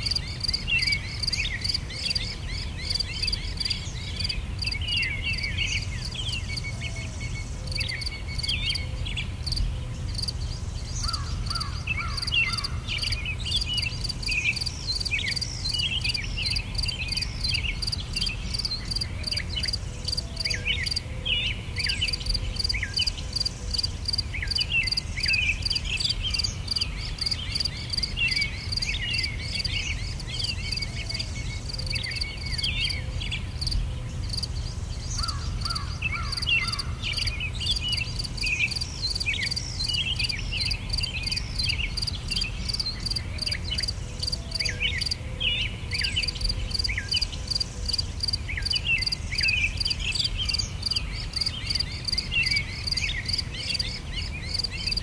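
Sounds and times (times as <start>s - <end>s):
insects chirping in rapid pulse: 0.0s - 2.2s, 9.4s - 10.4s, 11.0s - 21.0s, 22.1s - 32.9s, 33.6s - 45.2s, 46.4s - 53.8s, 54.5s - 55.0s.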